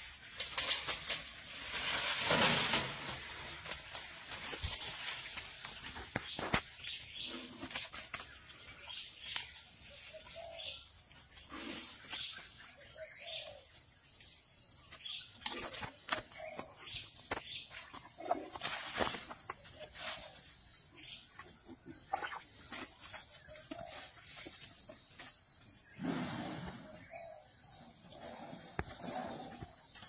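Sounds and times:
high insect hum: 0.0s - 30.0s
jungle birds chirping: 0.0s - 30.0s
elephant snapping leaves and twigs: 0.2s - 6.9s.

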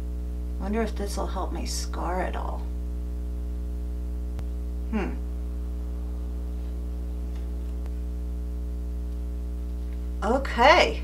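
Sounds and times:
electrical mains hum: 0.0s - 11.0s
voice murmuring: 4.9s - 5.3s.

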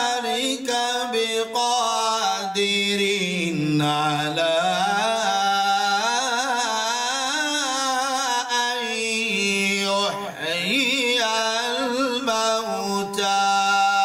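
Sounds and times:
man chanting melodically: 0.0s - 14.0s.

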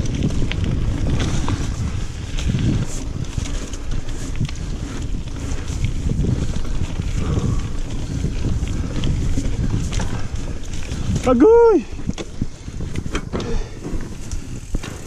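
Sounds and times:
bike clicking and rattling: 0.0s - 15.0s
bike tyres rumbling on dirt: 0.0s - 15.0s
wind buffeting microphone: 0.0s - 15.0s.

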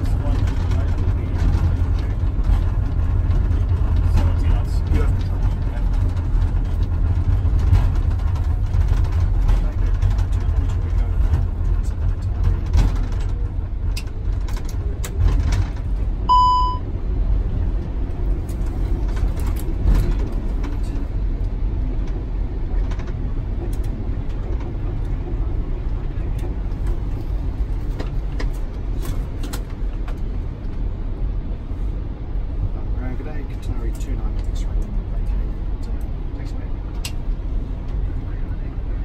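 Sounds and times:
airliner rolling low rumble: 0.0s - 39.0s
short electronic beep: 16.3s - 16.9s.

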